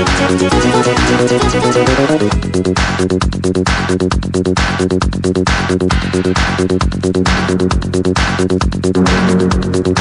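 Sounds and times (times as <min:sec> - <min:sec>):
rapid synth notes: 0:00.0 - 0:02.7, 0:08.9 - 0:10.0
kick drum beat: 0:00.0 - 0:10.0.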